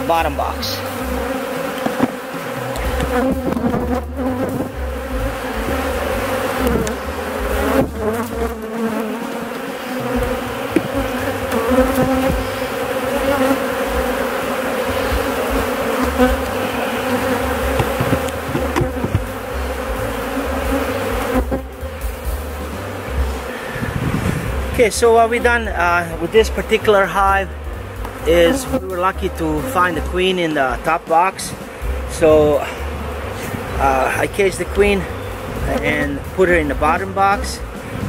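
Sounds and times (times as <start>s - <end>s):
honeybees buzzing: 0.0s - 38.0s
light knocks: 17.7s - 19.3s.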